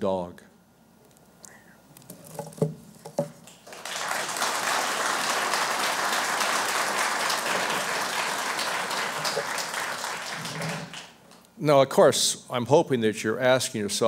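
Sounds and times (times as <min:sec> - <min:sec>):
audience applauding: 0:03.4 - 0:11.4.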